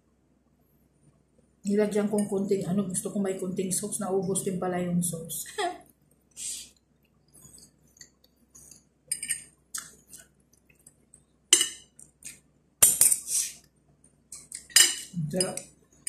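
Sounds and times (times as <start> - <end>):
cutlery scraping ceramic plate: 9.1 - 9.4.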